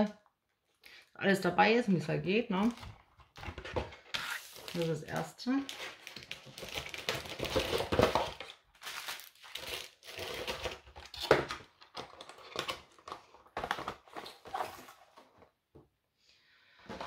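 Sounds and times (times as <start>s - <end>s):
packaging crinkling and rustling: 2.6s - 15.6s.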